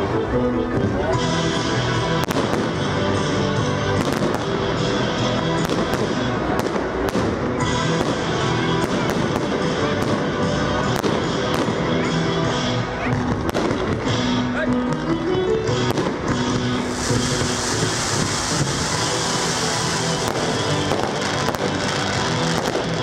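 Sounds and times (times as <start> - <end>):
loud music: 0.0 - 23.0
fireworks bangs and cracks: 0.8 - 15.0, 15.7 - 23.0.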